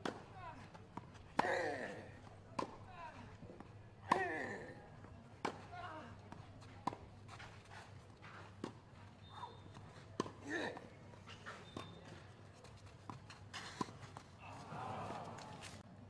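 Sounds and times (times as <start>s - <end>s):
tennis ball hit by rackets: 4.1s - 4.5s, 5.4s - 5.7s, 10.2s - 10.8s.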